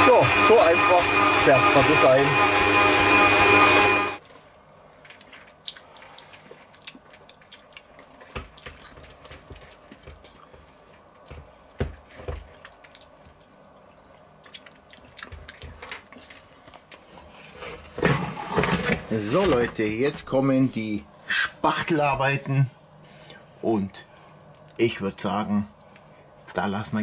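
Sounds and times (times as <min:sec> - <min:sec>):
wet licking and lip-smacking: 0:05.2 - 0:08.2, 0:14.4 - 0:15.6.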